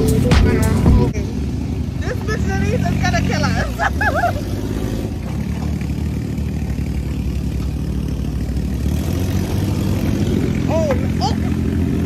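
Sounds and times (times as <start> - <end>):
buggy engine running: 0.0 - 12.0.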